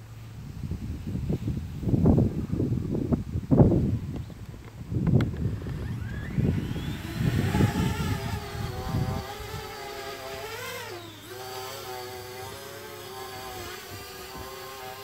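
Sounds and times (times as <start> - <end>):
drone propellers whining: 5.1 - 15.0.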